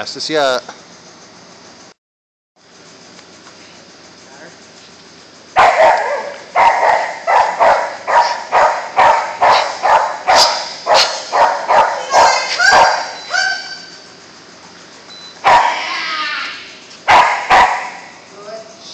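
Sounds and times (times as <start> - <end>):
dog barking: 5.6 - 13.9, 15.4 - 15.9, 17.0 - 18.1.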